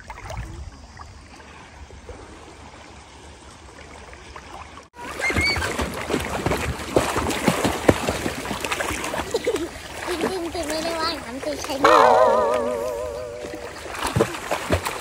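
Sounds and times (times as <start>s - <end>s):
water lapping softly: 0.0s - 15.0s
child splashing while swimming: 5.0s - 15.0s.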